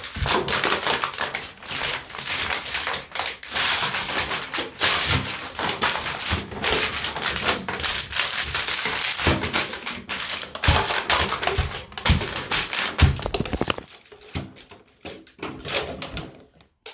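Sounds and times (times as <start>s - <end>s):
plastic bottles crunching underfoot: 5.8s - 14.5s.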